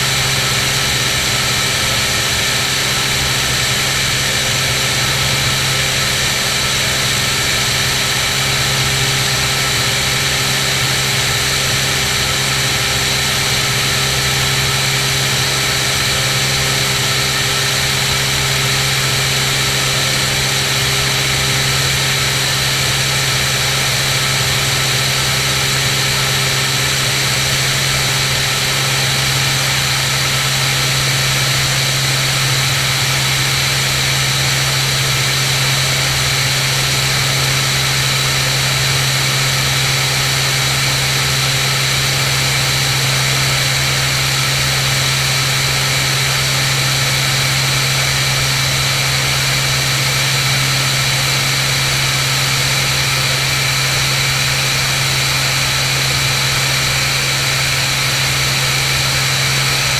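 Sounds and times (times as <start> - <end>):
propeller plane engine droning: 0.0 - 59.9.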